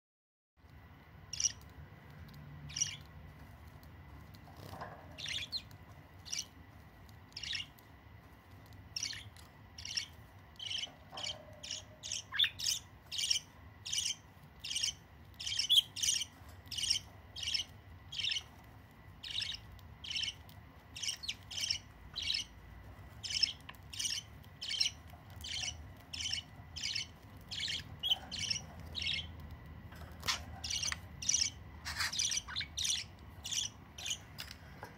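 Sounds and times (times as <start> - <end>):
bird chick chirping: 1.3 - 1.7, 2.3 - 3.1, 4.6 - 6.6, 7.3 - 7.8, 8.9 - 18.5, 19.2 - 22.6, 23.2 - 29.6, 30.2 - 34.9.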